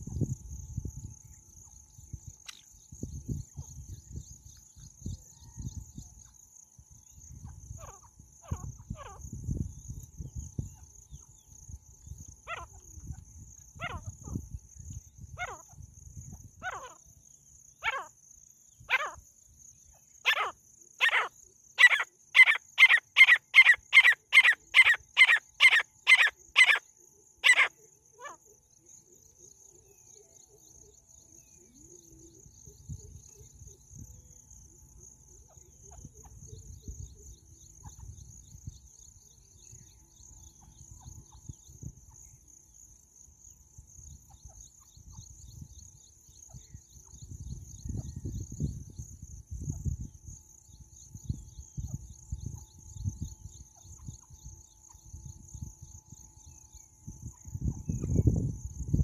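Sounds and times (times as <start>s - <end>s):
francolin calling: 1.2s - 42.5s.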